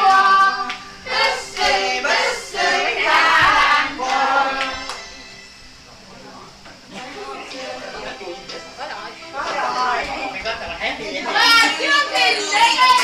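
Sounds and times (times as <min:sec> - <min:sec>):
women singing loudly together: 0:00.0 - 0:05.0, 0:11.3 - 0:13.0
hand claps: 0:00.1 - 0:00.8, 0:04.0 - 0:05.1.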